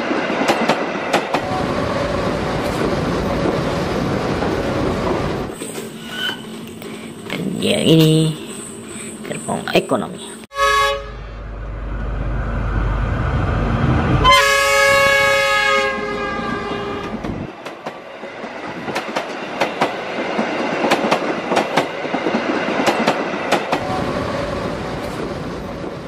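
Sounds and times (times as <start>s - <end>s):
train horn: 10.5s - 11.4s, 14.2s - 17.2s
train wheels clicking over rail joints: 17.2s - 24.0s.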